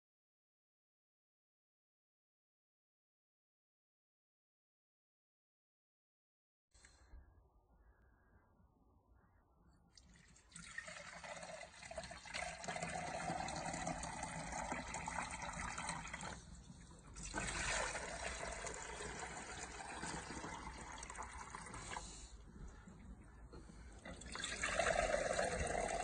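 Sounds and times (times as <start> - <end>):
water pouring into plastic jug: 10.0 - 22.8, 23.7 - 26.0.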